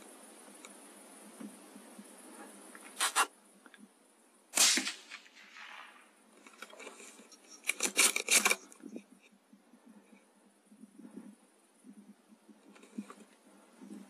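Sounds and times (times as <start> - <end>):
rifle shot with echo: 4.6 - 6.2.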